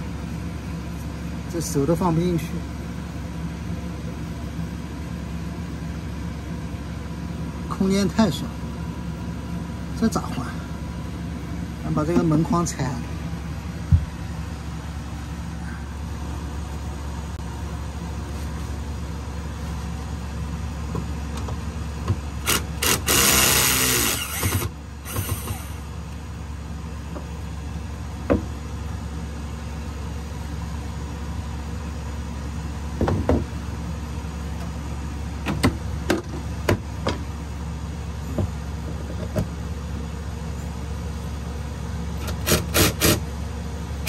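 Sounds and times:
steady low hum: 0:00.0 - 0:44.0
small power tool running: 0:22.4 - 0:25.8, 0:42.2 - 0:43.2.

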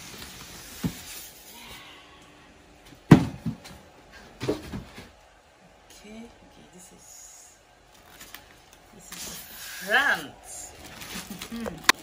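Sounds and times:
box being handled and knocked: 0:03.1 - 0:03.7.

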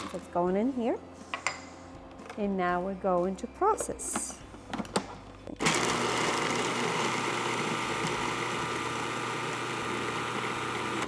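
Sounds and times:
food processor motor chopping: 0:05.6 - 0:11.0.

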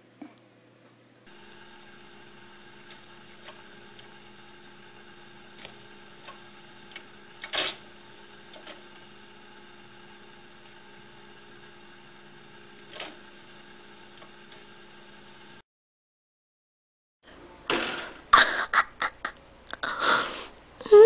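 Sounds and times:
room tone hiss and hum: 0:00.0 - 0:15.6, 0:17.2 - 0:21.0.

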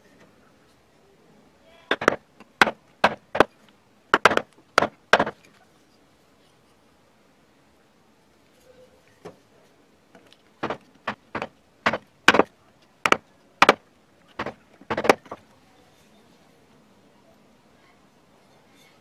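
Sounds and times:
mallet striking gouge handle: 0:01.9 - 0:03.5, 0:04.2 - 0:05.4, 0:10.6 - 0:12.5, 0:13.1 - 0:13.8.

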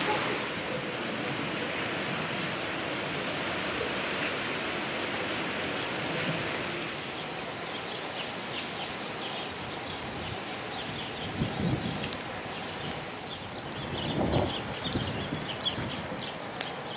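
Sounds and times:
small birds chirping: 0:06.9 - 0:16.9.

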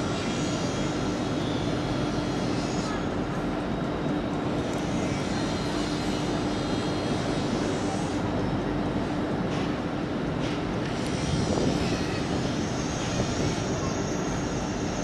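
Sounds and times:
constant low hum: 0:00.0 - 0:15.0
train rumbling: 0:08.6 - 0:15.0.

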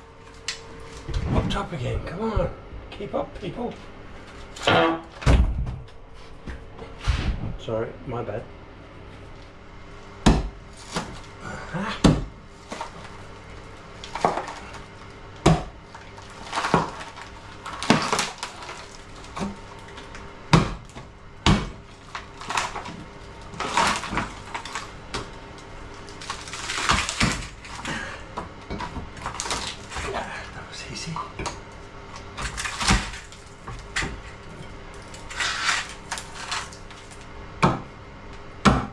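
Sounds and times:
wood cracking and splintering: 0:10.6 - 0:31.2, 0:32.1 - 0:37.3.

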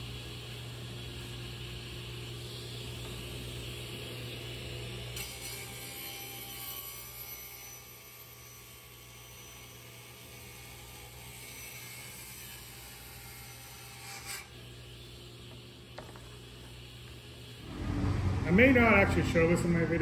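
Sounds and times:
table saw cutting plywood: 0:05.1 - 0:08.6, 0:10.4 - 0:14.6, 0:17.6 - 0:20.0
low machine hum: 0:17.4 - 0:20.0.

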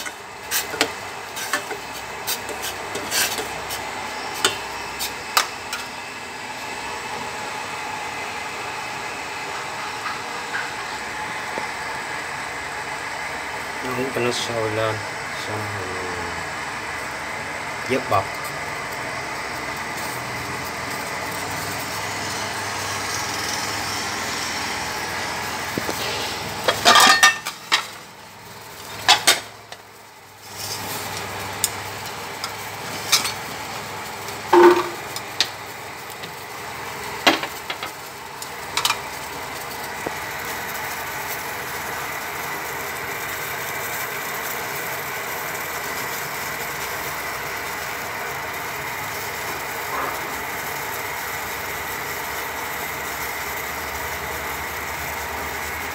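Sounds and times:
pot of water boiling: 0:00.0 - 0:55.9.

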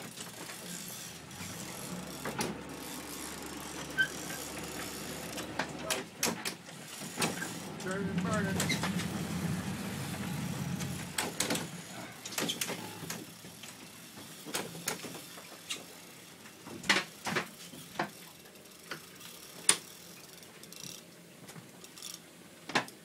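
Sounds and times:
fishing reel ratchet clicking: 0:18.7 - 0:21.0, 0:21.8 - 0:22.2.

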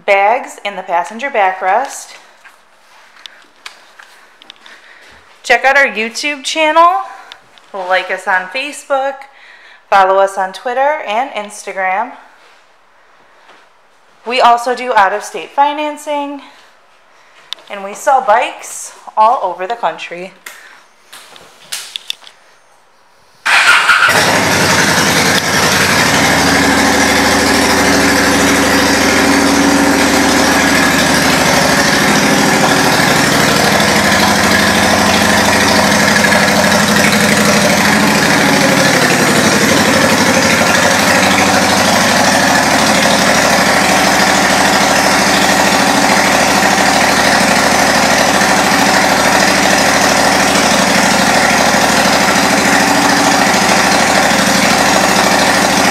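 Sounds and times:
motorcycle engine idling: 0:23.4 - 0:55.9.

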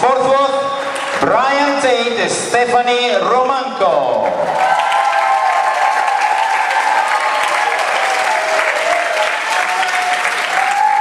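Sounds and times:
audience applauding: 0:00.6 - 0:01.8, 0:04.2 - 0:11.0.

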